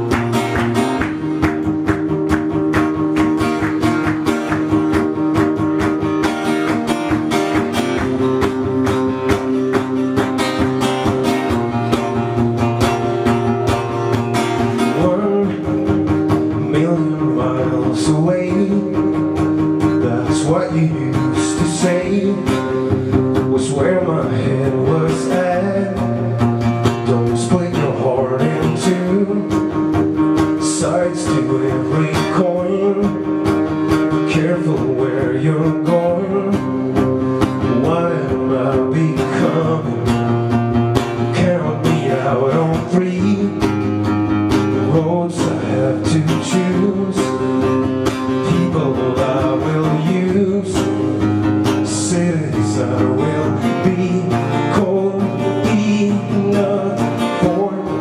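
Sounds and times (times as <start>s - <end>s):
acoustic guitar strumming: 0.0s - 58.0s
man singing: 14.6s - 58.0s.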